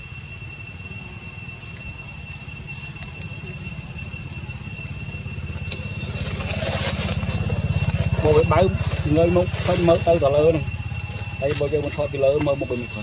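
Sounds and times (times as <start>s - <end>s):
steady high-pitched tone: 0.0s - 13.0s
engine idling: 3.0s - 13.0s.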